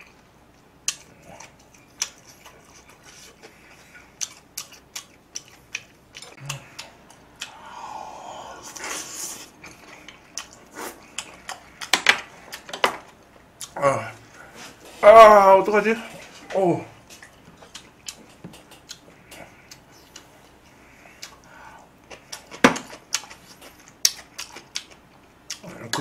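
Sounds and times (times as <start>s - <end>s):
chewing and wet mouth sounds: 0.0s - 14.4s, 17.0s - 26.0s
breathy sound: 6.4s - 9.6s.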